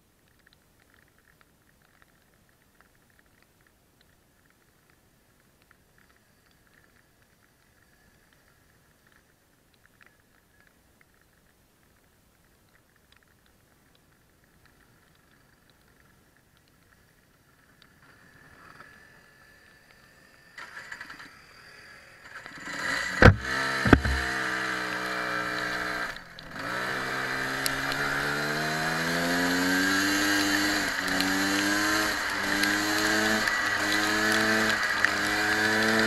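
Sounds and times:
kart engine revving: 0:22.2 - 0:36.0
kart engine starting bangs: 0:22.6 - 0:24.7.

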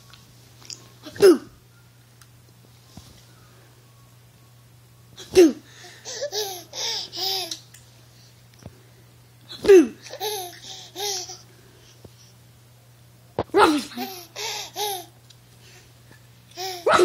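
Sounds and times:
baby laughing: 0:05.3 - 0:07.6, 0:10.0 - 0:11.4, 0:13.6 - 0:15.1, 0:16.5 - 0:17.0.

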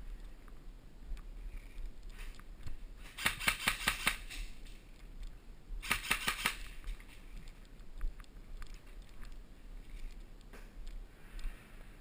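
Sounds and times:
airsoft guns firing bursts: 0:03.1 - 0:04.4, 0:05.8 - 0:06.7.

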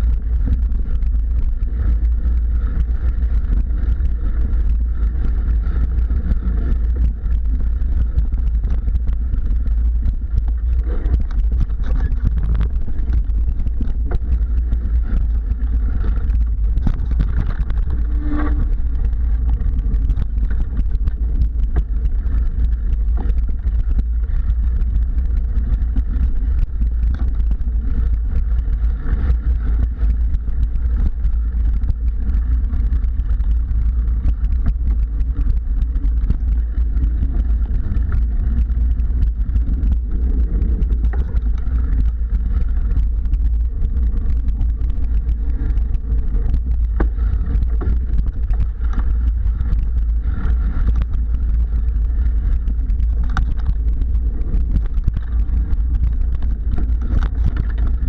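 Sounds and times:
wind buffeting and trail rumble: 0:00.0 - 0:58.0
small knocks and rattles: 0:52.9 - 0:58.0.

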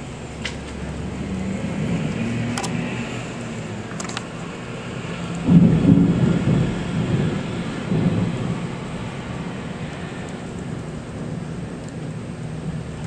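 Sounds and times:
thunder rumbling: 0:04.8 - 0:13.0.

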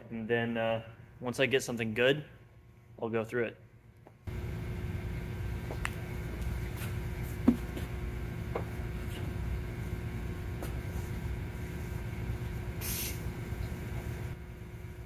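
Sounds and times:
machine shop hum: 0:04.3 - 0:15.0.

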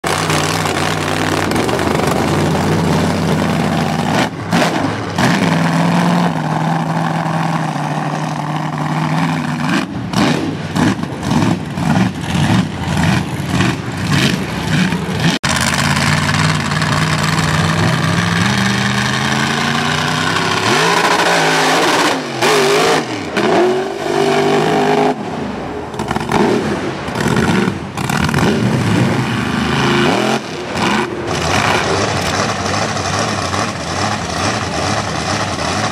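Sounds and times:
truck engine revving: 0:00.0 - 0:35.9.

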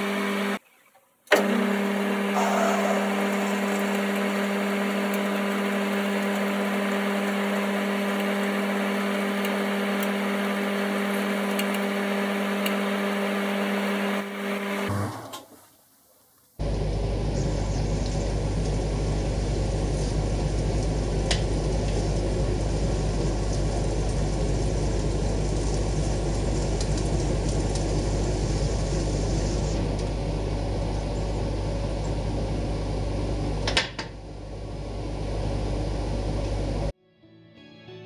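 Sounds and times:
metal lathe motor hum: 0:01.4 - 0:14.9.

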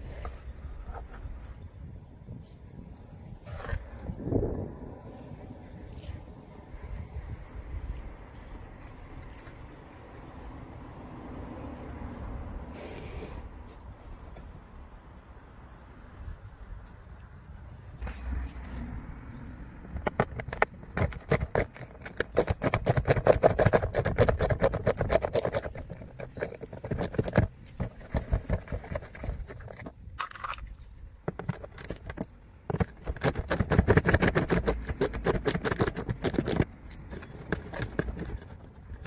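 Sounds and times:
hand scratching plastic: 0:19.9 - 0:39.0.

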